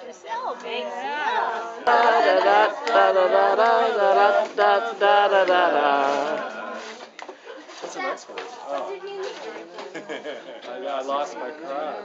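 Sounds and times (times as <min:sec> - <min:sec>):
voices singing unaccompanied: 0:00.4 - 0:07.4.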